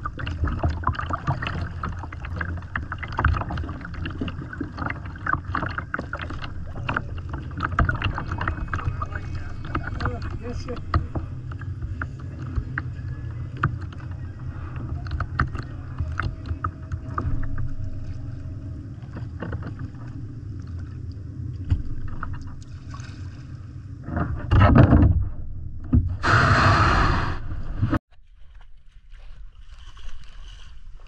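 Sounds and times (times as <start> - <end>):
water splashing: 0.0 - 24.8
low rumble: 0.0 - 28.0.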